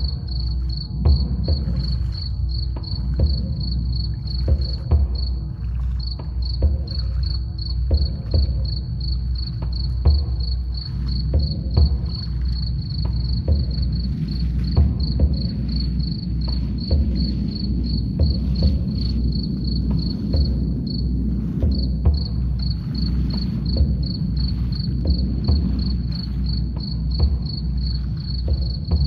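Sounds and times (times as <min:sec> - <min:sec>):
crickets chirping: 0:00.0 - 0:29.0
low rumble: 0:00.0 - 0:29.0
soft deep drum beats: 0:00.0 - 0:29.0.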